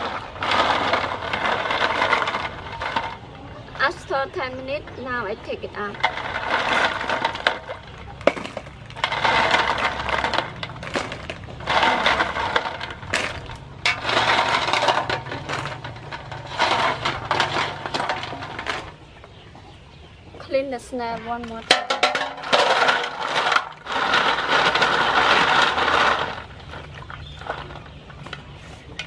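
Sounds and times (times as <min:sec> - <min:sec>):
snail shells clattering on metal: 0:00.0 - 0:19.0, 0:21.4 - 0:28.0.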